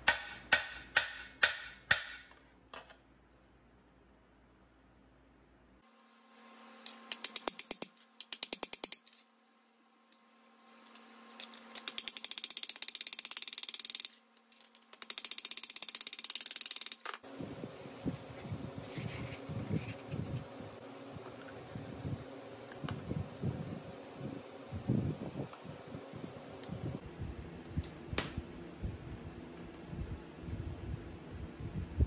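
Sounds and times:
hammer tapping on anvil: 0:00.0 - 0:02.4
handling and rubbing noises: 0:17.7 - 0:22.9.

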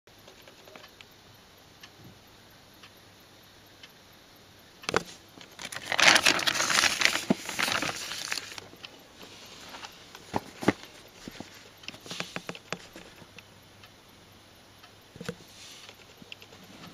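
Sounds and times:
crinkly bag rustling: 0:05.4 - 0:08.7.

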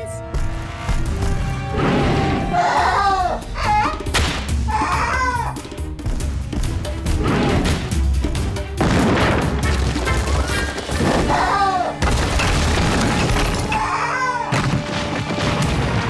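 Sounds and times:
dramatic background music: 0:00.0 - 0:16.0
boulders rumbling and crashing: 0:08.8 - 0:13.9, 0:14.5 - 0:16.0.

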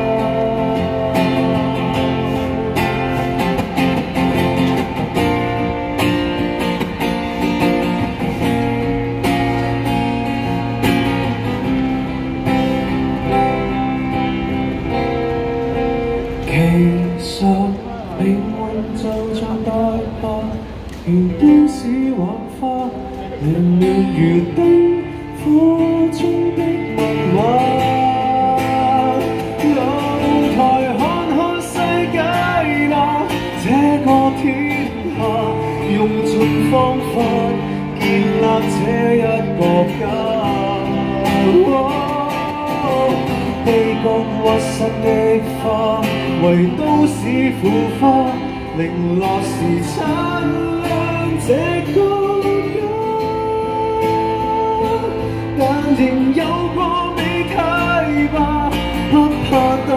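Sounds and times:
man singing into a microphone: 0:00.0 - 0:05.9, 0:11.2 - 0:59.9
acoustic guitar: 0:00.0 - 0:59.9.

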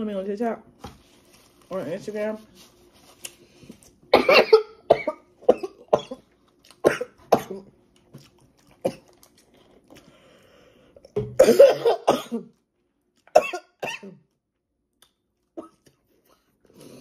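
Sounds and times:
woman coughing: 0:04.1 - 0:07.7, 0:11.4 - 0:12.5, 0:13.3 - 0:14.2.

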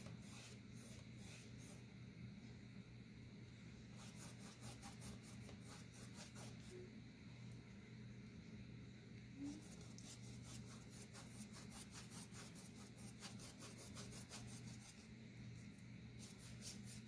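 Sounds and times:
paintbrush swishing on canvas: 0:16.2 - 0:17.0.

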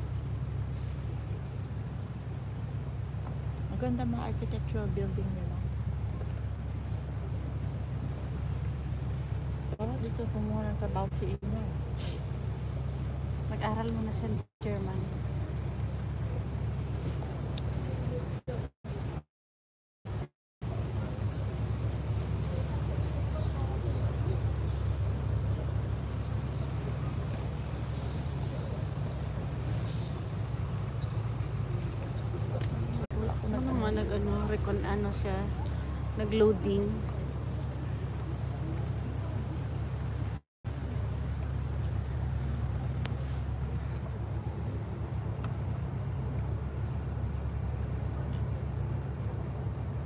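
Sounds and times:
boat engine rumbling: 0:00.0 - 0:19.2, 0:20.1 - 0:50.0.

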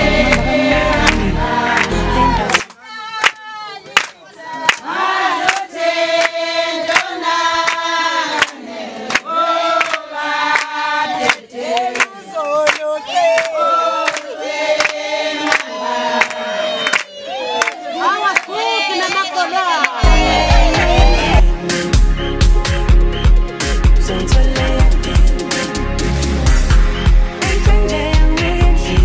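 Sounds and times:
voices singing in chorus: 0:00.0 - 0:02.6, 0:03.7 - 0:22.3
steady sharp beats: 0:20.0 - 0:28.4.

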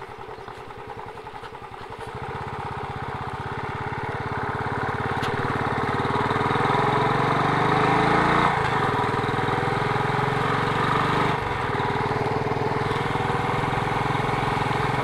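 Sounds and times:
motorcycle engine thumping: 0:00.0 - 0:06.5.

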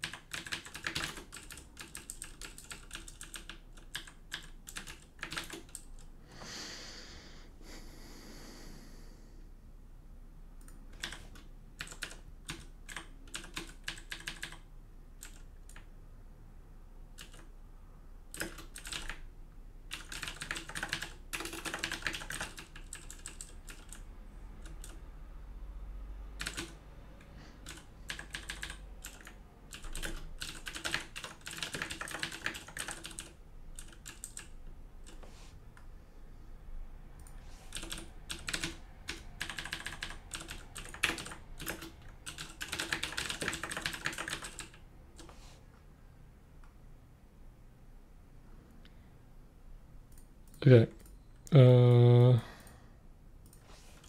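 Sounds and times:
computer keyboard typing: 0:00.0 - 0:06.1, 0:10.6 - 0:15.9, 0:17.1 - 0:17.5, 0:18.3 - 0:19.3, 0:19.9 - 0:25.0, 0:26.4 - 0:35.3, 0:37.2 - 0:45.4.

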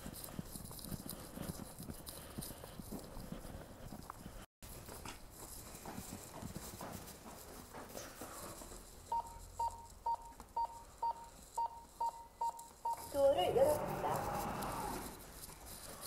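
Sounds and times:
footsteps on hard floor: 0:00.1 - 0:09.1
short electronic beeps: 0:09.1 - 0:13.2.

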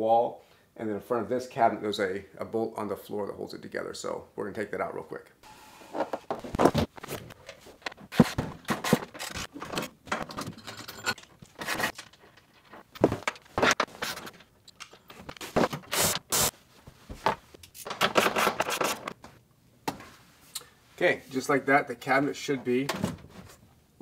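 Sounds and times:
tools scraping and clinking: 0:06.0 - 0:16.2.

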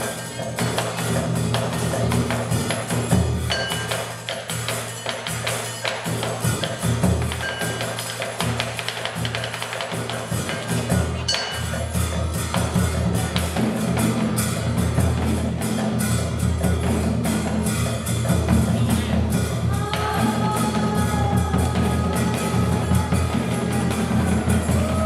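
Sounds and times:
wood block strikes: 0:00.0 - 0:13.6
rapid drum strikes: 0:00.0 - 0:25.0.

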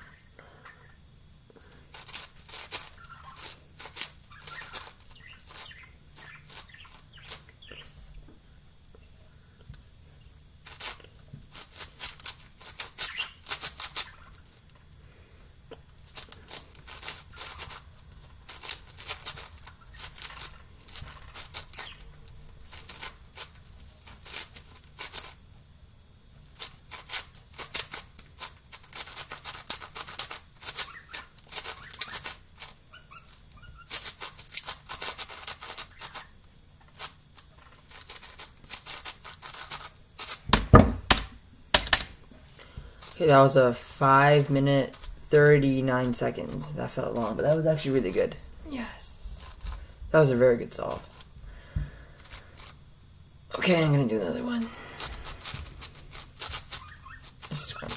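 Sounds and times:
puzzle cube clicking turns: 0:16.0 - 0:25.4, 0:44.9 - 0:45.3, 0:55.0 - 0:57.9
cube knocking on wooden table: 0:40.5 - 0:42.0.

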